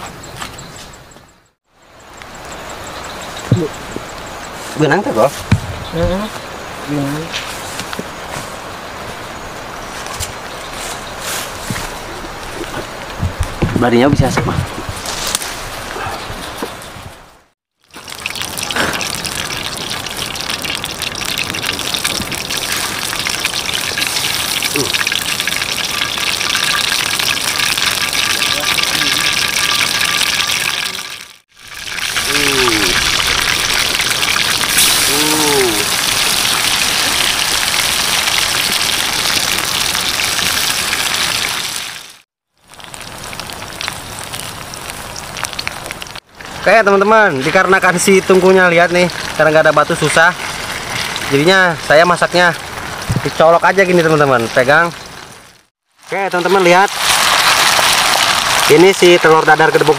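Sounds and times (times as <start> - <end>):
sharp crackles: 9.9 - 16.9, 17.8 - 59.9
batter sizzling in a pan: 17.8 - 46.2, 55.8 - 59.9.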